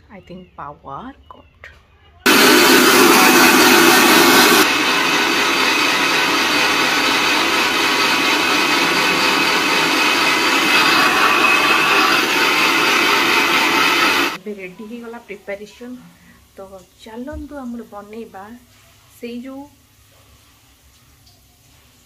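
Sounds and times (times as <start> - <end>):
mixer grinder motor running: 2.3 - 14.4.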